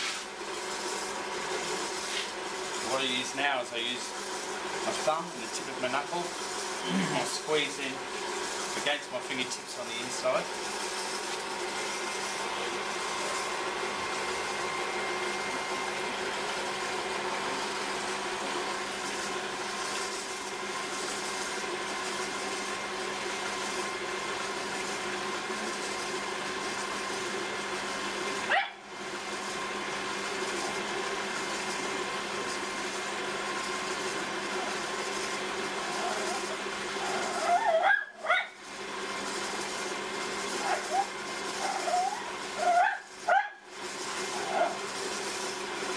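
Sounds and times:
potter's wheel humming: 0.0s - 45.9s.

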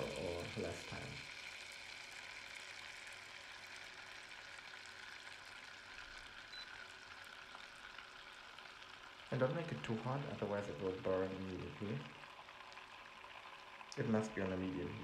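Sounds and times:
butter sizzling in a pot: 0.0s - 15.0s.

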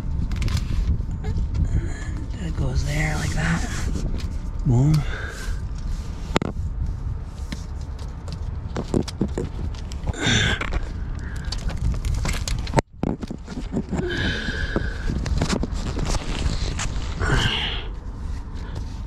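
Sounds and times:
steady low rumble: 0.0s - 19.0s
handling clicks and knocks: 7.8s - 10.8s.

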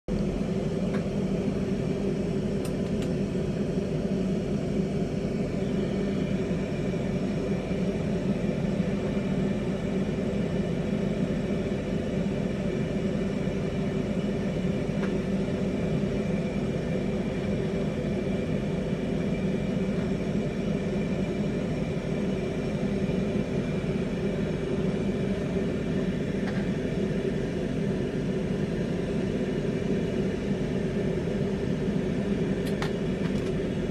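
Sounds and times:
torch flame burning: 0.1s - 33.9s.

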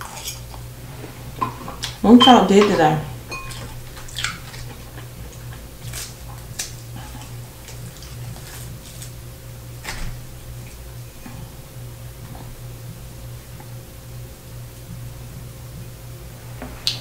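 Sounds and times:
low steady hum: 0.0s - 17.0s
crisp crust crackling: 3.1s - 11.0s.

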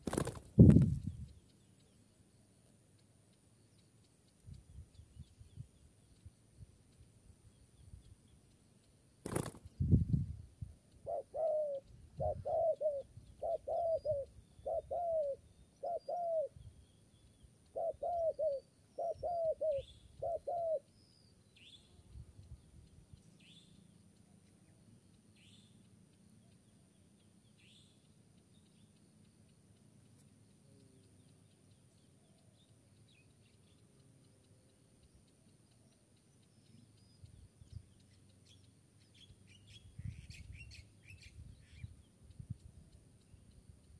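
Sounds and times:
small bird chirping: 0.0s - 43.9s
dove cooing: 11.0s - 16.6s, 17.7s - 20.9s.

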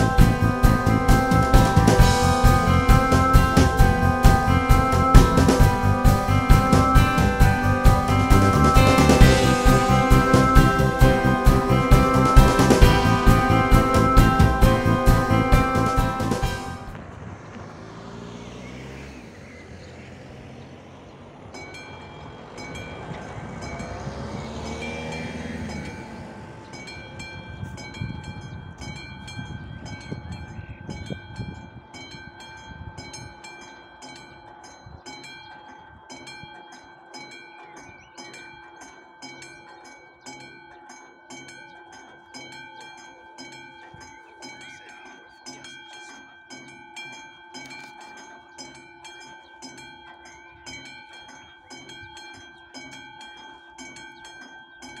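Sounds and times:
level-crossing bell ringing: 0.0s - 17.1s, 19.2s - 55.0s
car rumbling over crossing: 0.0s - 29.6s.

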